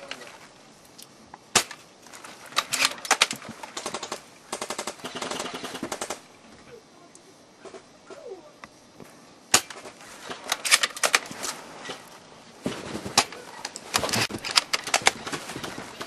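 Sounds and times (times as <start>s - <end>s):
airsoft guns firing: 2.6s - 6.2s, 12.7s - 16.0s.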